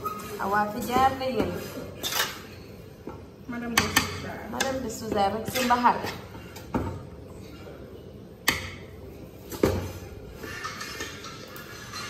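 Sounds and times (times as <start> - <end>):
kitchen utensils knocking: 3.7 - 7.0.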